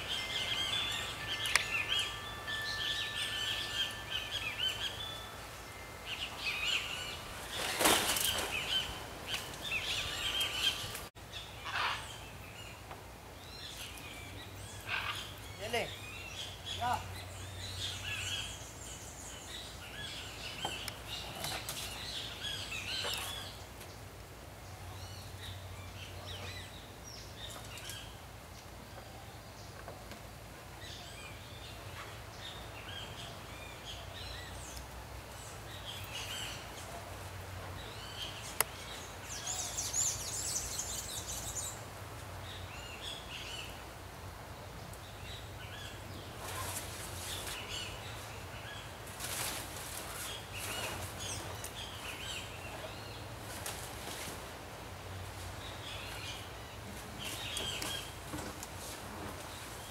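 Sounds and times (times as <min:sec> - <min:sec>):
small birds chirping: 0:00.0 - 0:24.1, 0:55.2 - 0:59.9.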